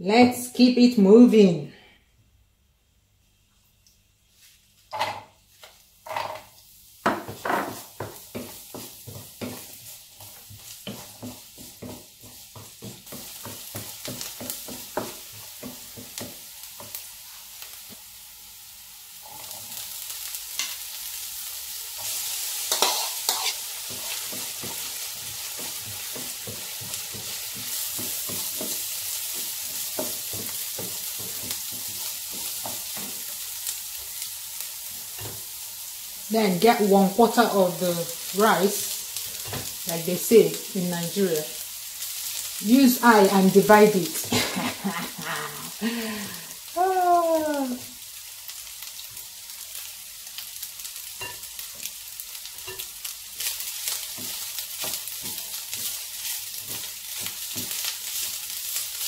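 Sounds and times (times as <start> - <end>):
onion sizzling in oil: 4.3 - 59.0
wooden spatula scraping pan: 22.0 - 33.2.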